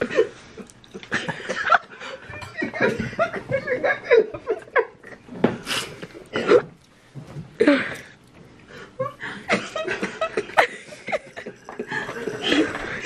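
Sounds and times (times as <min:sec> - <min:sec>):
people laughing: 0:01.0 - 0:05.2, 0:09.0 - 0:13.0.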